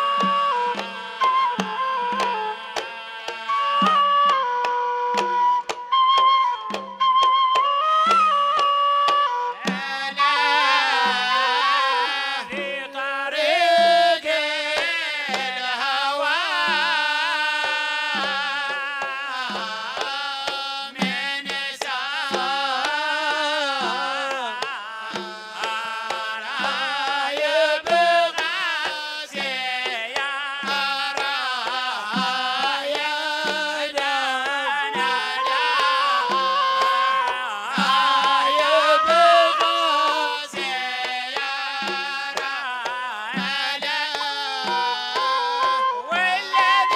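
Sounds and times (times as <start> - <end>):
small hand drums beating: 0.0 - 46.9
person singing ornamented melody: 9.6 - 46.9.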